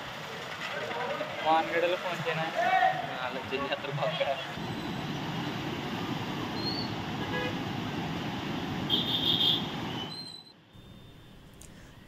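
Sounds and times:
outdoor background noise: 0.0s - 12.0s
vehicle horn honking: 7.2s - 7.6s, 8.9s - 10.1s.

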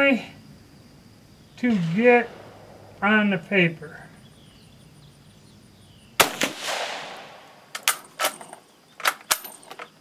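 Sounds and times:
rifle shot with echo: 1.6s - 4.5s, 6.2s - 7.9s.

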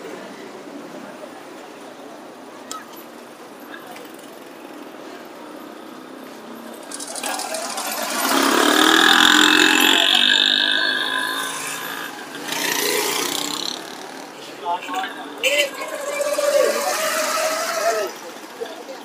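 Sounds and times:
street bustle: 0.0s - 19.0s
vehicle engine passing by: 6.8s - 18.6s.

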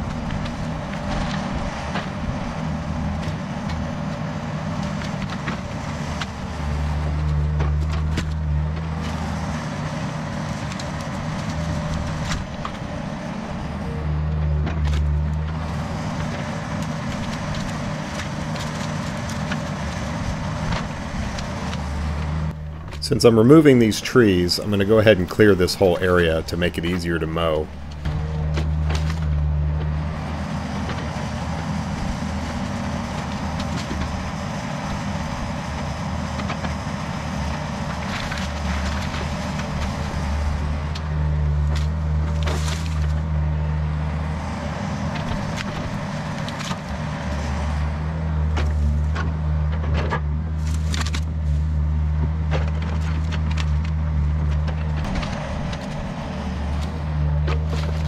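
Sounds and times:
excavator diesel engine running: 0.0s - 58.0s
branches cracking and snapping: 14.7s - 23.0s, 27.8s - 30.0s, 30.8s - 43.4s, 44.2s - 58.0s.

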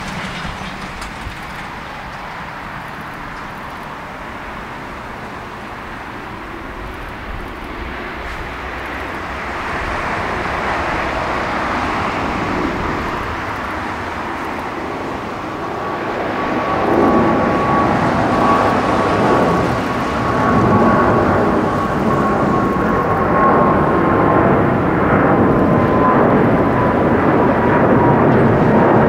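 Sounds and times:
jet engine roar: 0.0s - 29.0s
thin steady whine: 1.7s - 28.6s.

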